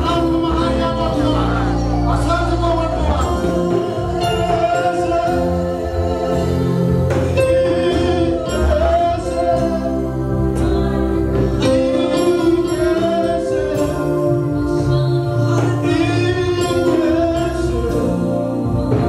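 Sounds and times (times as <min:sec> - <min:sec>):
gospel singers with band: 0:00.0 - 0:19.0.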